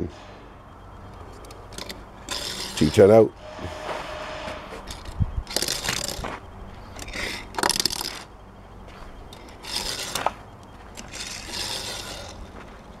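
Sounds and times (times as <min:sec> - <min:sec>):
toy car rolling on board: 0:04.9 - 0:06.3, 0:07.0 - 0:08.3, 0:09.3 - 0:12.5.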